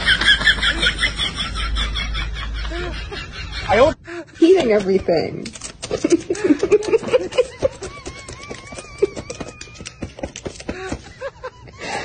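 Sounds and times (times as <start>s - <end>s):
laptop keys clicking: 4.9s - 11.0s.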